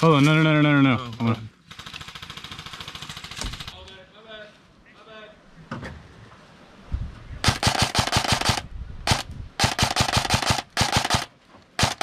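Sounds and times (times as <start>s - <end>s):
airsoft rifle firing bursts: 1.7s - 3.8s, 7.4s - 12.0s.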